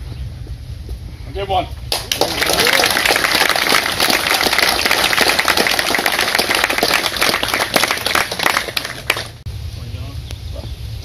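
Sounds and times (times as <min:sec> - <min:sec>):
crowd applauding: 0:01.9 - 0:09.4.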